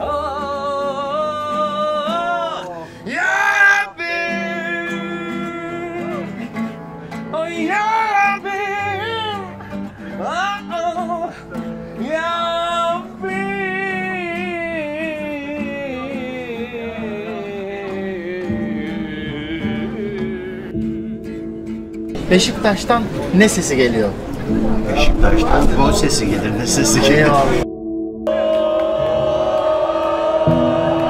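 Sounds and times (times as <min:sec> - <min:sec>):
person singing with vibrato: 0:00.0 - 0:06.6, 0:12.0 - 0:22.0
acoustic guitar playing: 0:00.0 - 0:31.0.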